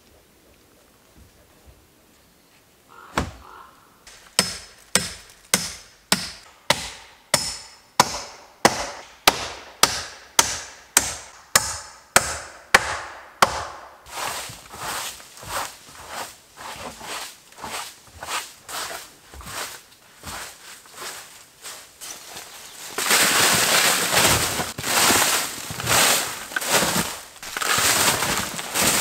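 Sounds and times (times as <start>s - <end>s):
hammer driving nails into wood: 4.1s - 13.9s.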